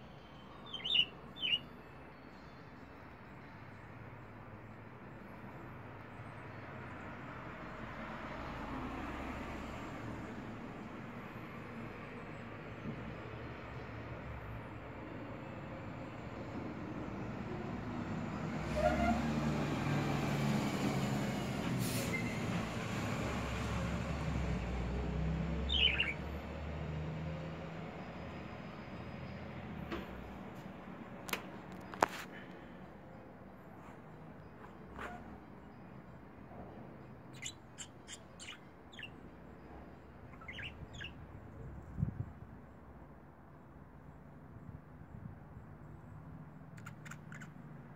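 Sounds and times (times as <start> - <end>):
street traffic rumble: 0.0 - 2.1, 3.0 - 47.9
budgerigar chirping: 0.6 - 1.7, 25.7 - 26.2, 37.3 - 39.2, 40.3 - 41.2, 46.8 - 47.6.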